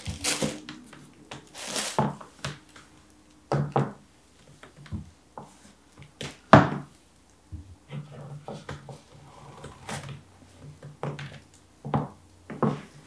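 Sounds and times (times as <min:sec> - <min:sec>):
shoes knocking and rustling: 0:00.0 - 0:00.8, 0:01.4 - 0:02.7.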